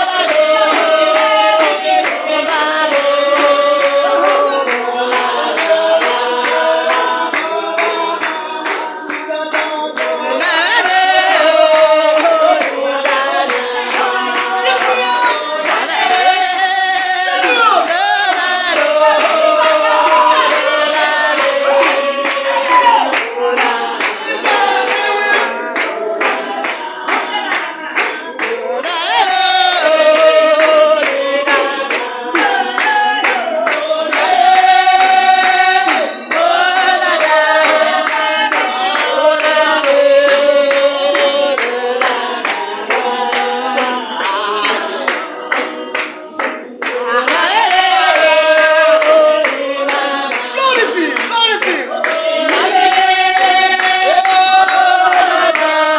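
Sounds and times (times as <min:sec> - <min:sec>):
congregation singing a hymn: 0:00.0 - 0:55.9
rhythmic hand clapping: 0:00.0 - 0:55.9.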